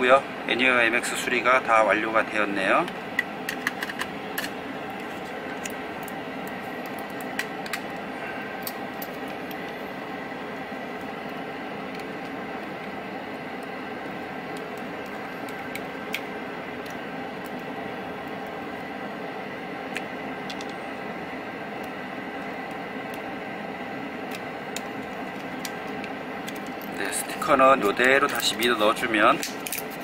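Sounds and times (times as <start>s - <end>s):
steady machine hum: 0.0s - 30.0s.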